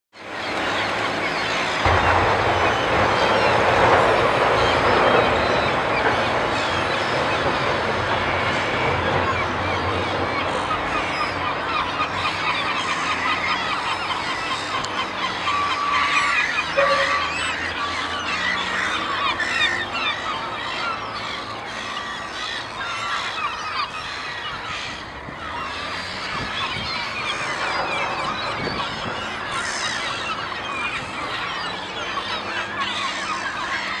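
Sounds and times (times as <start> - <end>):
flock of gulls calling: 0.2 - 34.0
gull long call: 11.7 - 19.4.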